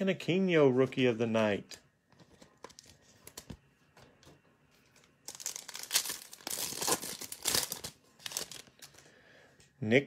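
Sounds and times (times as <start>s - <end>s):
foil wrapper tearing and crinkling: 5.3s - 9.0s.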